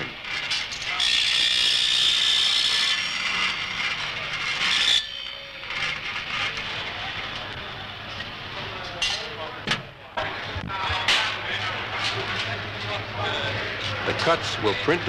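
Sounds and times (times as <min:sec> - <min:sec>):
power saw screeching through metal: 0:00.0 - 0:07.3
machine and shop noise: 0:00.0 - 0:15.0.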